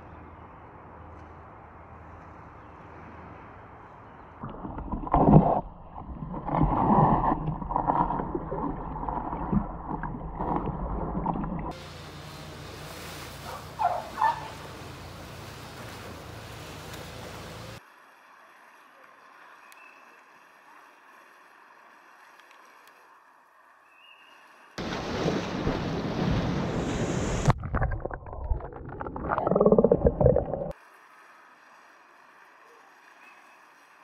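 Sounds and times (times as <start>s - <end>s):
underwater churning and splashing: 4.4s - 11.8s, 24.8s - 30.8s
water rushing: 4.4s - 18.9s, 24.5s - 34.0s.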